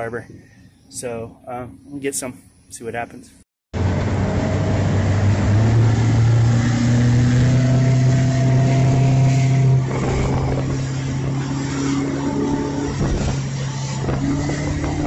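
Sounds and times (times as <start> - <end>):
motorboat engine running: 3.8 - 15.0.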